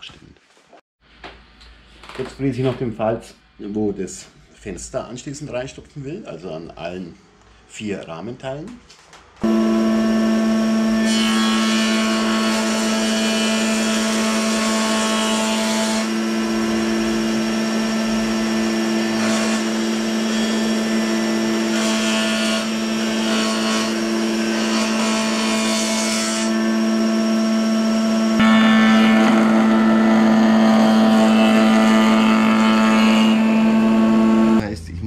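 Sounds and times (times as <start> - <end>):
cutter cutting wood: 9.4 - 34.6.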